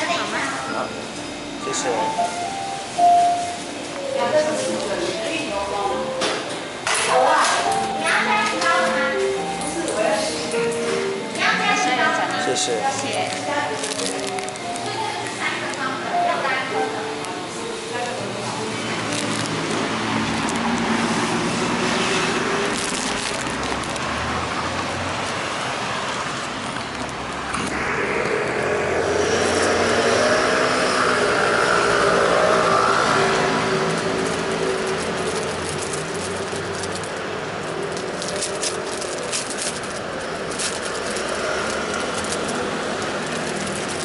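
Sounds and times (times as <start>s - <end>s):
road traffic: 0.0s - 44.0s
vehicle passing close: 17.5s - 44.0s.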